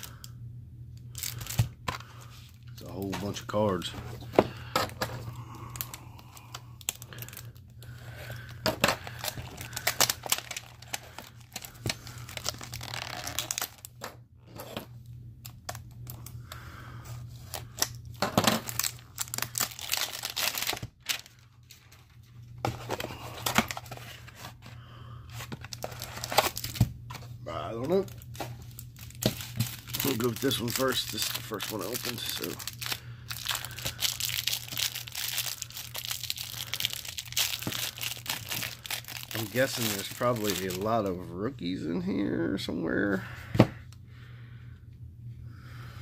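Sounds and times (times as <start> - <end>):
plastic wrap crinkling and tearing: 1.1 - 2.2, 4.9 - 14.0, 17.4 - 22.1, 25.4 - 26.9, 27.7 - 41.2.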